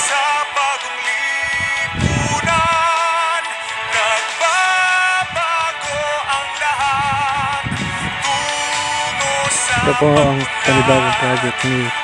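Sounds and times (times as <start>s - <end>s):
music with long held notes: 0.0s - 12.0s.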